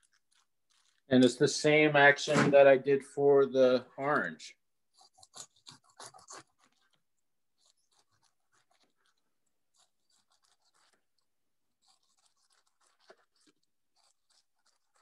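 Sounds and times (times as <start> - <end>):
knife sawing through fruit skin: 4.9 - 7.0, 7.6 - 15.0.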